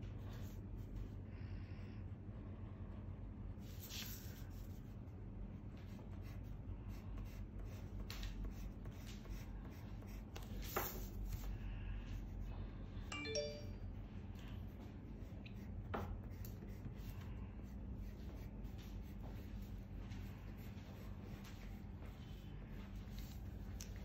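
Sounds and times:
pencil scratching on paper: 0:03.5 - 0:12.5, 0:14.6 - 0:24.0
faint chime-like tone: 0:13.1 - 0:14.0.

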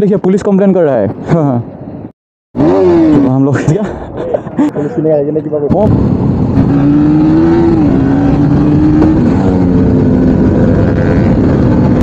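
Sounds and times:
wind and road noise: 0:00.0 - 0:12.0
motorcycle engine at speed: 0:05.8 - 0:12.0.

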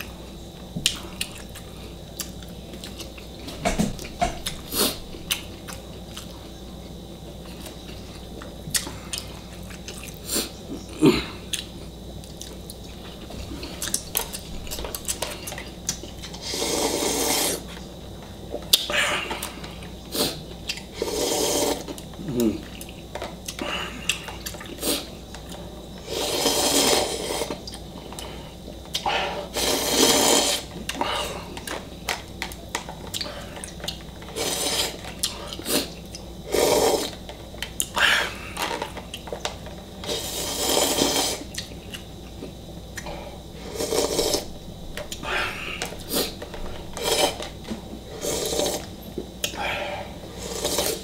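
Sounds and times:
chewing: 0:00.8 - 0:03.3, 0:07.4 - 0:10.5, 0:27.4 - 0:36.3
person slurping noodles: 0:16.4 - 0:17.7, 0:21.0 - 0:22.6, 0:26.0 - 0:27.6, 0:29.1 - 0:31.3, 0:34.3 - 0:35.9, 0:36.5 - 0:37.2, 0:40.0 - 0:41.5, 0:43.6 - 0:44.5, 0:47.0 - 0:47.5, 0:48.1 - 0:48.9, 0:49.6 - 0:51.0.

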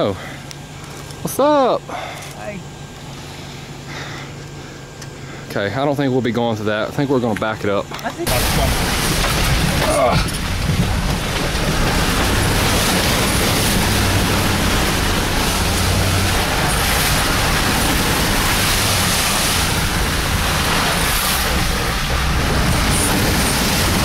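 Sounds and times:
tires churning mud and water: 0:00.0 - 0:24.0
truck engine running under load: 0:08.3 - 0:24.0.

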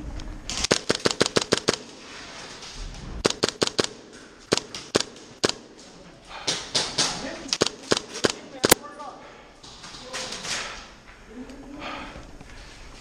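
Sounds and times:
airsoft gun firing: 0:00.5 - 0:02.2, 0:03.2 - 0:05.8, 0:06.5 - 0:08.8.

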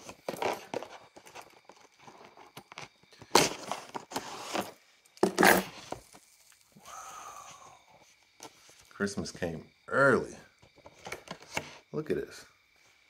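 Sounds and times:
packaging tearing and rustling: 0:00.0 - 0:06.7.

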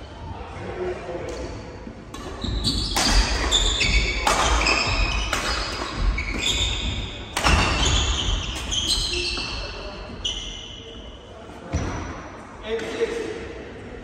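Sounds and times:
racket striking shuttlecock: 0:02.1 - 0:08.8
shoes squeaking on floor: 0:02.2 - 0:11.1.

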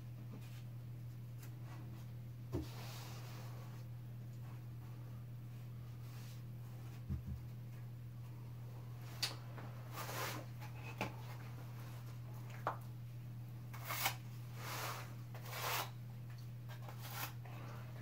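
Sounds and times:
steady low hum: 0:00.0 - 0:18.0
drywall knife scraping: 0:13.7 - 0:16.0, 0:16.7 - 0:17.4.

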